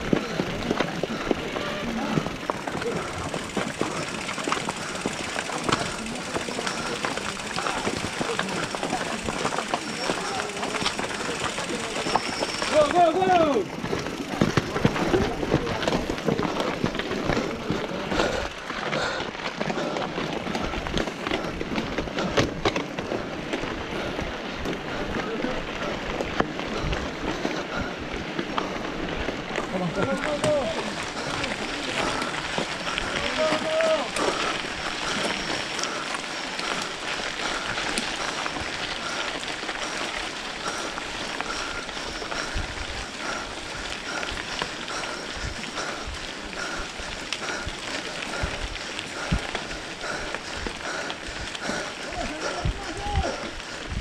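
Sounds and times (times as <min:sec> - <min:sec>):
bike tyres crunching on gravel: 0:00.0 - 0:54.0
bikes clicking and rattling: 0:00.0 - 0:54.0.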